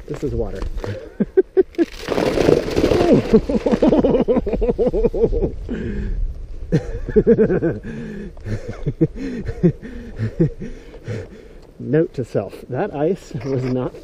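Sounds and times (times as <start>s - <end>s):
man laughing: 0.9s - 2.0s, 3.0s - 5.9s, 6.7s - 10.8s
bike tyres crunching through ice: 1.6s - 4.3s.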